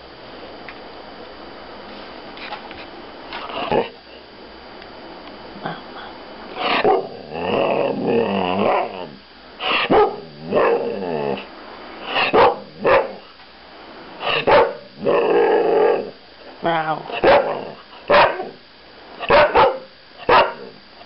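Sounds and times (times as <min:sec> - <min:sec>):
dog barking: 0:09.7 - 0:10.8, 0:12.1 - 0:13.3, 0:14.3 - 0:14.9, 0:17.2 - 0:18.6, 0:19.2 - 0:20.7.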